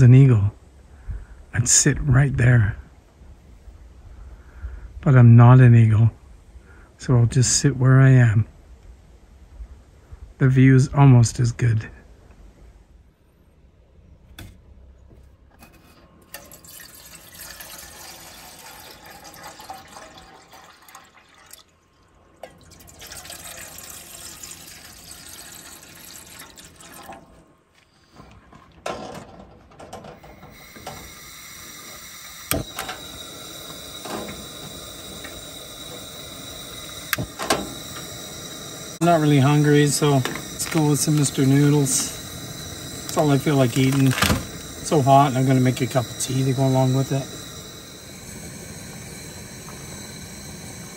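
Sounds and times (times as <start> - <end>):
camp stove burner hissing: 16.3 - 20.9, 22.7 - 27.1, 30.0 - 50.9
water pouring into metal pot: 16.3 - 27.3, 30.5 - 50.9.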